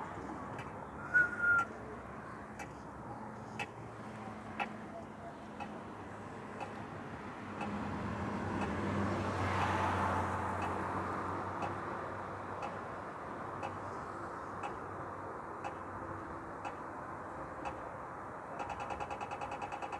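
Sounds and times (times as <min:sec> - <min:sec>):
car passing: 0:01.0 - 0:01.6, 0:07.2 - 0:11.5.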